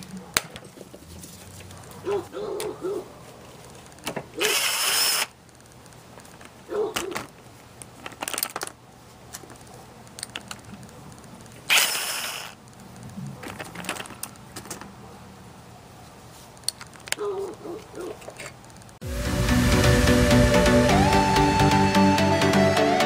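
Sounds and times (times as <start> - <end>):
ratchet clicks: 3.8 - 6.4, 10.1 - 13.1.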